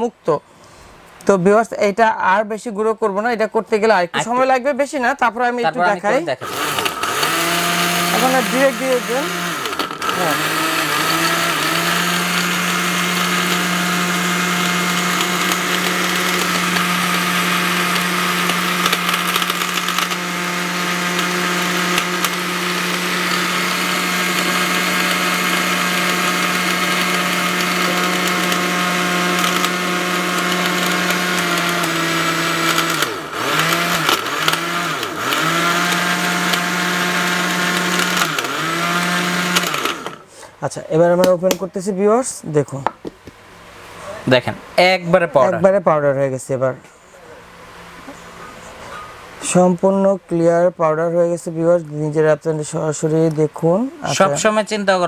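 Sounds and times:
mixer grinder motor running: 6.4 - 40.3.

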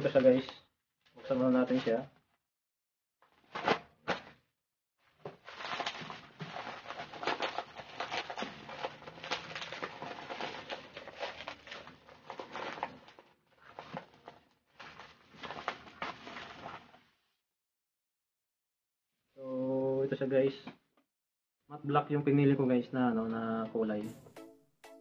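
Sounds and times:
plastic packaging crinkling: 5.3 - 16.9.

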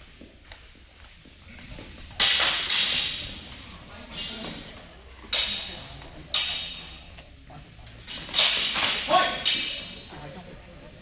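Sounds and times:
steel swords clashing: 2.2 - 4.6, 5.2 - 7.2, 8.0 - 10.3.

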